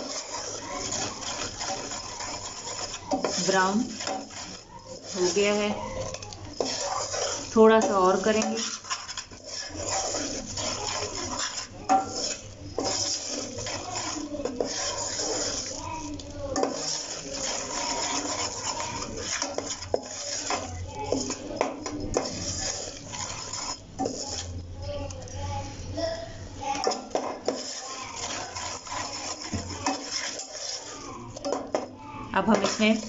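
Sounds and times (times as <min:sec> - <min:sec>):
metal spoon scraping steel pot: 0:00.0 - 0:25.3, 0:26.6 - 0:33.0.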